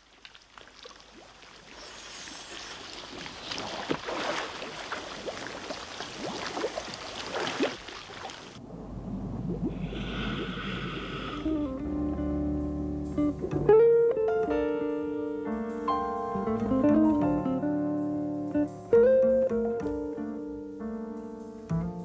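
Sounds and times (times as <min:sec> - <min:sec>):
air bubbling underwater: 0:00.8 - 0:11.9
low rumble: 0:08.6 - 0:12.7.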